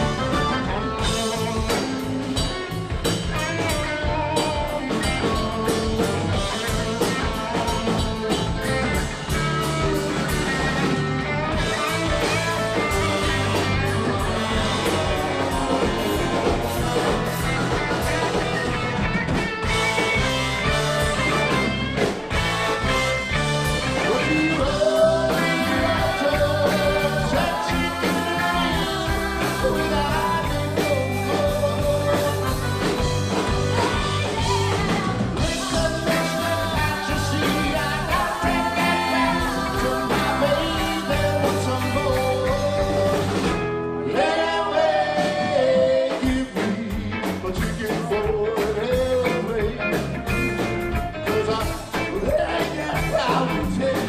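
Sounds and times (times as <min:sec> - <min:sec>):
live rock band playing: 0:00.0 - 0:54.0
slide trombone solo: 0:20.3 - 0:24.5.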